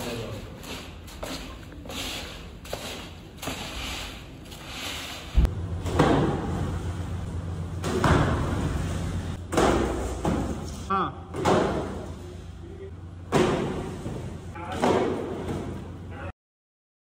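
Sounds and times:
low machine hum: 4.5 - 16.3.

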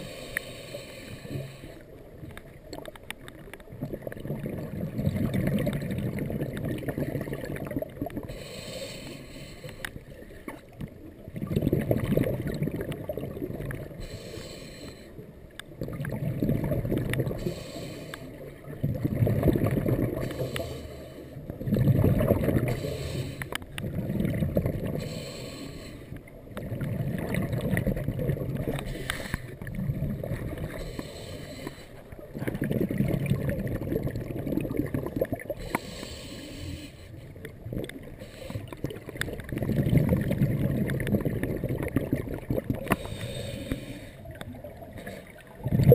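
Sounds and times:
regulator inhalation hiss: 0.0 - 1.8, 8.3 - 9.8, 14.0 - 15.2, 17.4 - 18.4, 22.7 - 23.5, 25.0 - 26.1, 30.8 - 32.0, 35.6 - 37.2, 43.0 - 44.2
exhaled bubbles rumbling: 1.4 - 8.5, 10.0 - 14.1, 15.3 - 17.7, 18.3 - 25.6, 26.2 - 31.2, 32.0 - 36.2, 37.2 - 45.9.

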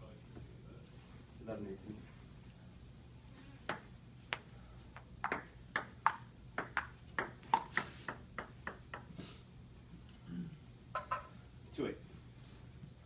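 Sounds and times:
table tennis ball hits: 3.7 - 4.4, 5.2 - 9.2.

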